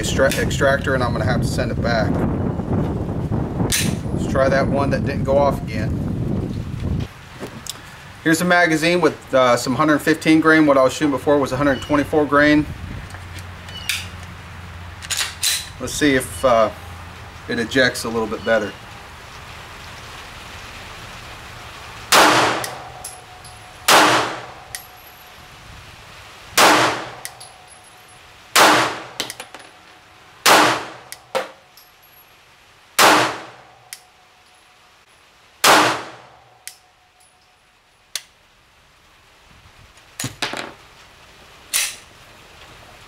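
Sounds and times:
pistol shots: 22.1s - 23.0s, 23.9s - 24.7s, 26.6s - 27.4s, 28.6s - 29.4s, 30.4s - 31.6s, 33.0s - 33.7s, 35.6s - 36.4s
sharp pistol click: 22.1s - 23.2s.

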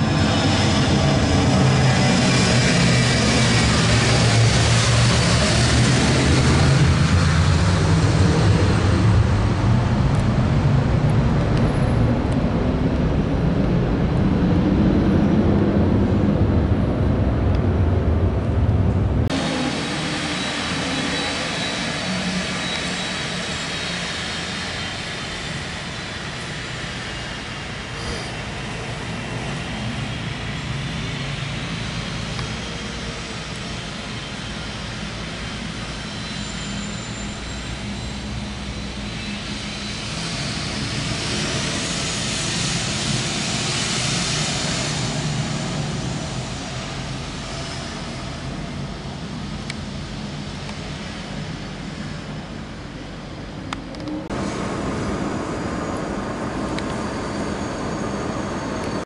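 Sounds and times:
jet engines whining: 0.0s - 59.0s
rushing hiss: 19.3s - 51.7s.

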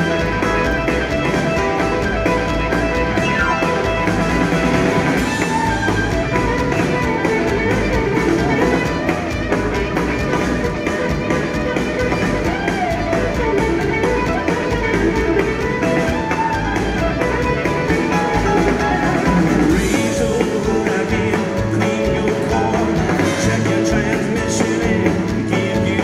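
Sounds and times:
electric guitar solo: 0.0s - 19.7s
live blues-rock band: 0.0s - 26.0s.

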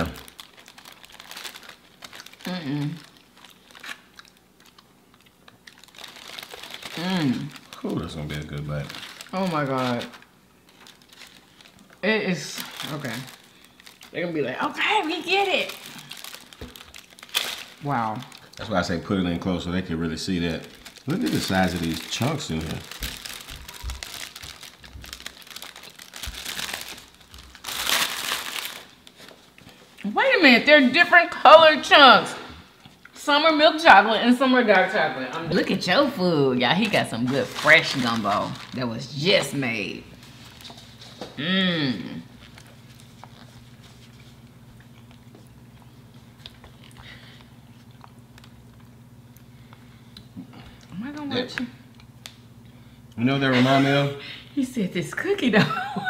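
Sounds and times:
paper bag crinkling: 0.0s - 4.4s, 5.7s - 19.0s, 20.2s - 29.6s, 36.8s - 41.2s, 42.3s - 45.3s
steady low hum: 0.0s - 56.0s
chewing: 3.0s - 7.0s, 42.4s - 51.0s.

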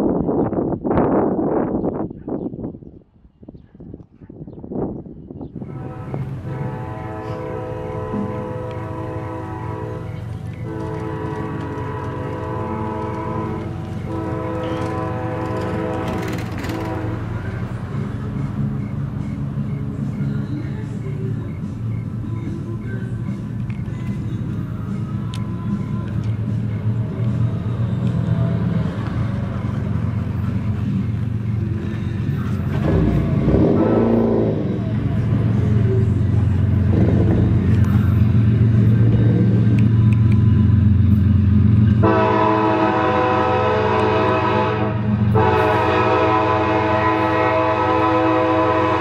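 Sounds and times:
low rumble of train: 0.0s - 49.0s
locomotive air horn blasts: 5.6s - 17.6s, 32.7s - 35.8s, 42.0s - 49.0s.

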